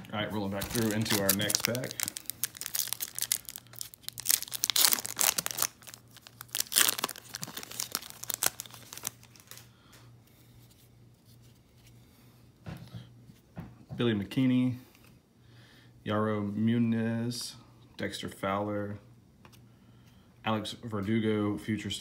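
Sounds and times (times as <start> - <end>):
wrapper tearing and crinkling: 0.5 - 9.7.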